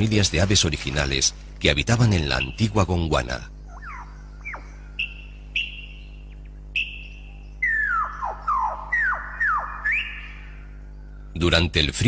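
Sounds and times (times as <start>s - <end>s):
lyrebird whistling: 2.2s - 2.8s, 3.6s - 11.4s.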